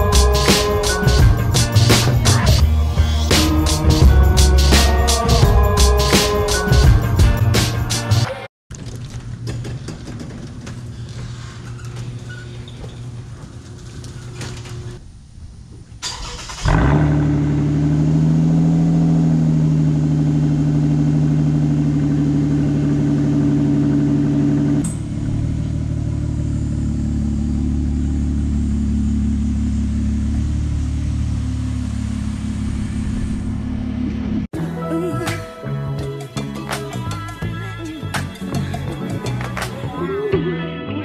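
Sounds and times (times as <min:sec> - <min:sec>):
car engine starting and idling: 0:16.0 - 0:34.5.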